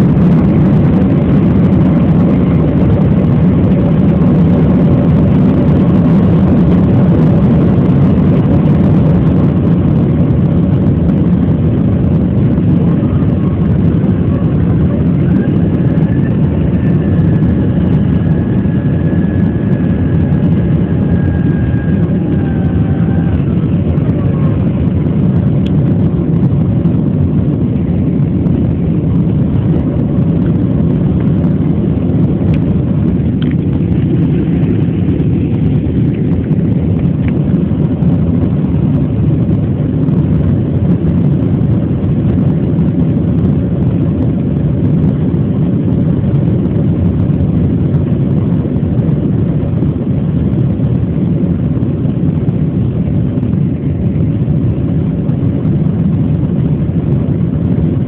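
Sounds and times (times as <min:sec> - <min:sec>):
jet engine rumble: 0:00.0 - 0:58.0
faint high whine: 0:12.5 - 0:24.9.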